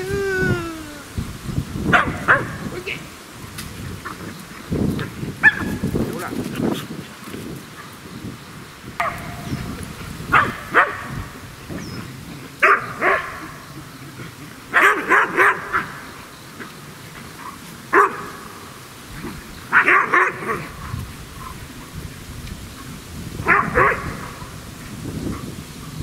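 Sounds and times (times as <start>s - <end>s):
dog barking excitedly: 1.9s - 2.7s, 5.4s - 5.8s, 10.3s - 11.2s, 12.6s - 13.5s, 14.7s - 15.9s, 17.9s - 18.3s, 19.7s - 20.8s, 23.4s - 24.4s.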